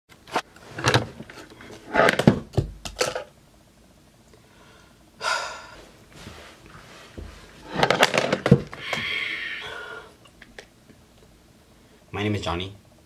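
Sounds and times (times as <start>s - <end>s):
person breathing: 4.4s - 7.9s, 8.7s - 10.2s
long sighing breath out: 4.6s - 5.8s, 8.8s - 10.2s.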